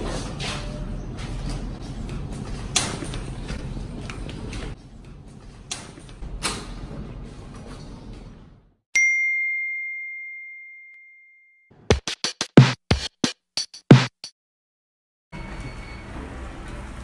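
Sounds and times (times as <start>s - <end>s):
bright bell ding: 9.0s - 11.6s.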